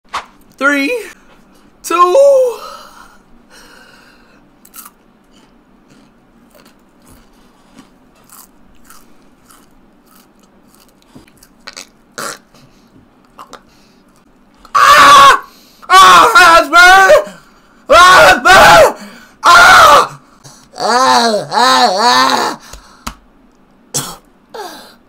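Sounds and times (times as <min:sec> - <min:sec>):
person chewing with crunches: 0:04.6 - 0:14.3
loud strained vocal cry: 0:14.7 - 0:22.7.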